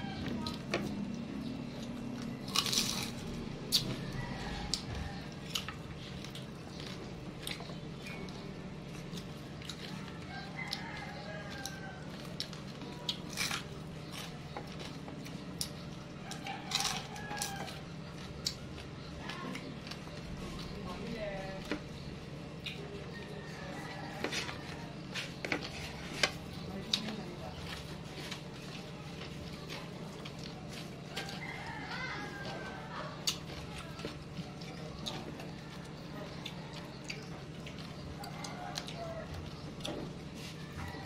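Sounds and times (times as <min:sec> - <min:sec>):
crunching of fried fish: 0:00.0 - 0:20.8
steady low hum: 0:00.0 - 0:41.0.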